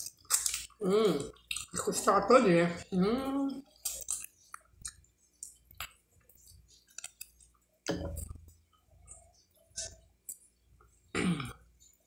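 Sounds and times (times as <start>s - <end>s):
close-up chewing with mouth smacks: 3.5s - 10.6s.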